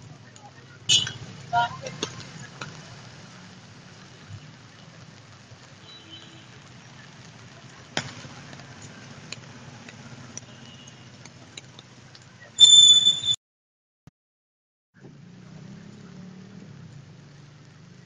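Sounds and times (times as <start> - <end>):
tires on wet road: 0.0 - 13.1, 15.0 - 18.0
vehicle engines rumbling: 0.0 - 13.2, 15.0 - 18.0
loud high-pitched tone: 12.6 - 13.4.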